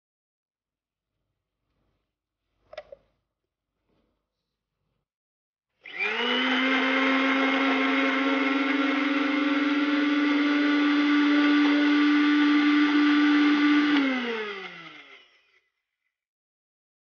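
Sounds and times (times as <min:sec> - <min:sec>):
motor winding down: 0:05.8 - 0:15.6
mixer grinder running: 0:05.8 - 0:15.7.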